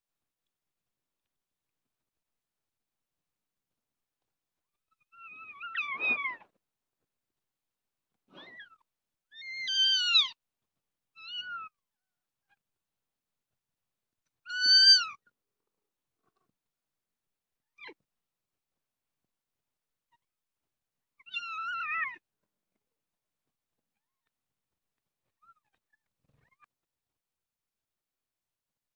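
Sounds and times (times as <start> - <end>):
kitten meowing: 5.0 - 6.5, 9.4 - 10.4, 14.5 - 15.2, 21.2 - 22.2.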